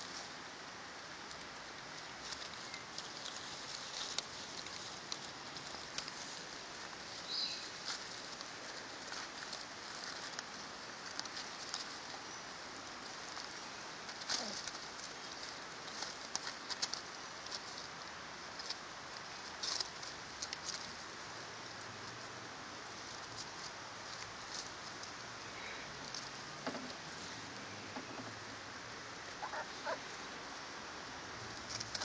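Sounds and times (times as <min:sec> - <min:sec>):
faint hiss: 0:00.0 - 0:32.0
puppies rustling in leaves: 0:00.0 - 0:32.0.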